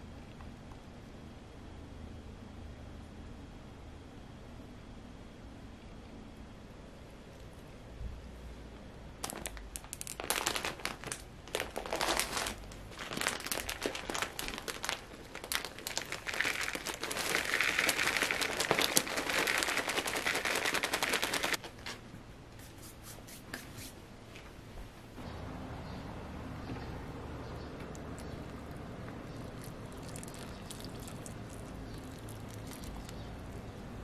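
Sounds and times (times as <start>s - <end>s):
plastic bag crinkling: 9.2s - 22.0s, 28.0s - 34.0s
soil pouring into pot: 15.4s - 21.5s, 29.4s - 33.6s.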